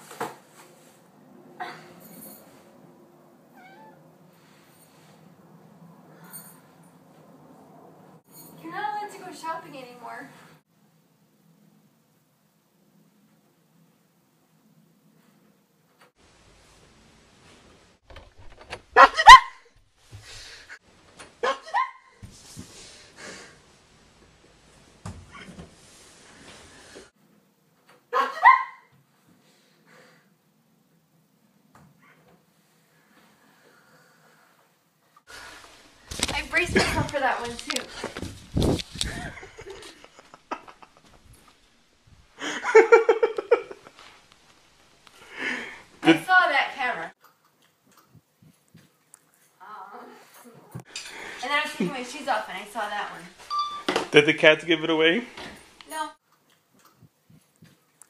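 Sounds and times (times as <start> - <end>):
soft rustling: 35.3 - 42.4, 43.7 - 45.2.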